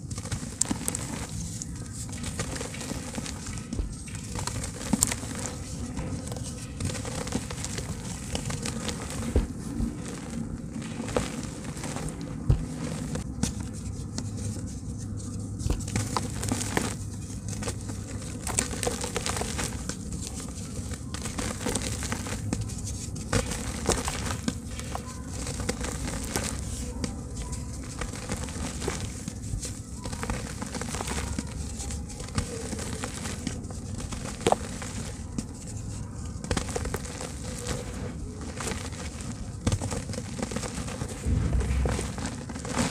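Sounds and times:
crackling: 0.0 - 13.5, 36.4 - 42.9
dried dirt crumbling: 0.0 - 42.9.

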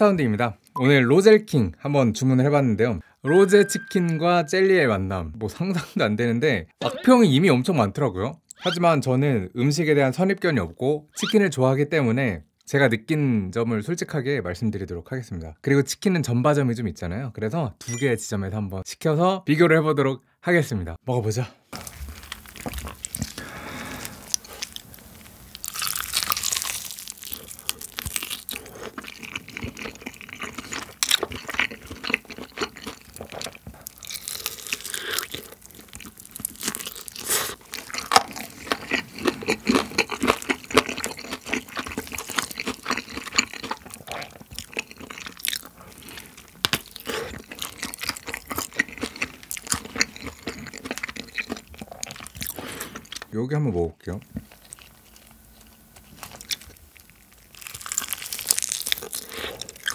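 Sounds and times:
crunchy chewing of fried chicken: 21.8 - 53.3, 54.1 - 59.9.

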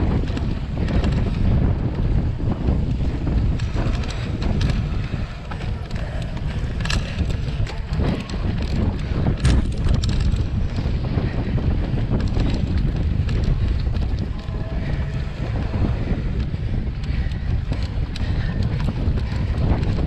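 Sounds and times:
wind buffeting microphone: 0.0 - 20.0
bike knocking over rough ground: 5.8 - 10.9.

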